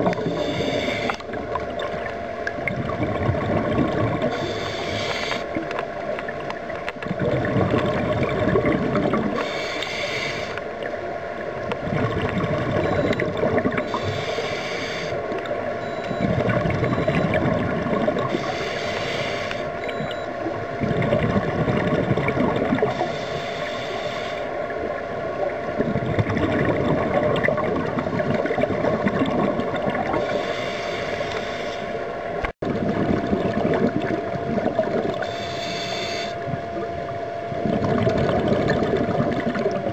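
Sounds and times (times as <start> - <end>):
faint steady hum: 0.0 - 39.9
regulator hiss on inhalation: 0.2 - 1.2, 4.3 - 5.5, 9.4 - 10.6, 13.9 - 15.2, 18.3 - 19.7, 23.0 - 24.5, 30.2 - 32.0, 35.2 - 36.4
bubbling gurgling exhalation: 2.6 - 4.5, 7.0 - 9.5, 11.8 - 14.0, 20.8 - 23.0, 25.7 - 30.4, 32.6 - 35.3, 37.5 - 39.9.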